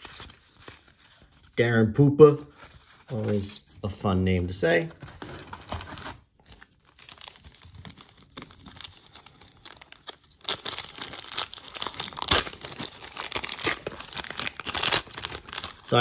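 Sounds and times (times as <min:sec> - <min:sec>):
card pack wrapper tearing: 0:05.0 - 0:16.0.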